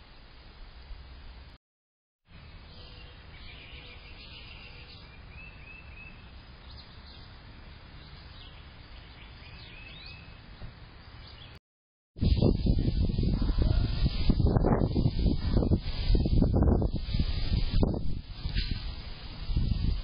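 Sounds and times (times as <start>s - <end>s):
faint bird chirps and calls: 2.4s - 7.3s.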